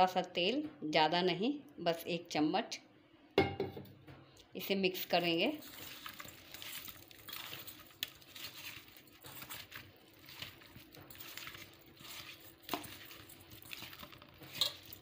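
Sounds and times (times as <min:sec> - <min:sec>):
hand mixing food rustling squishing: 0:04.9 - 0:15.0.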